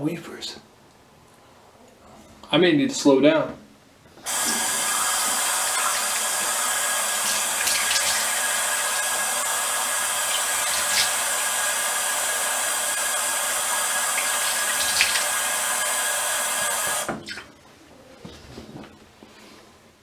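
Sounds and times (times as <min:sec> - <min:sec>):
tap water running into sink: 0:04.2 - 0:17.4.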